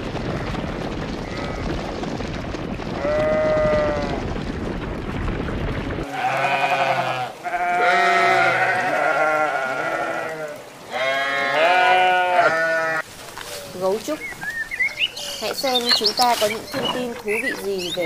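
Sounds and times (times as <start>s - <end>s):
steady rushing noise: 0.0s - 6.1s
sheep bleating: 6.0s - 13.0s.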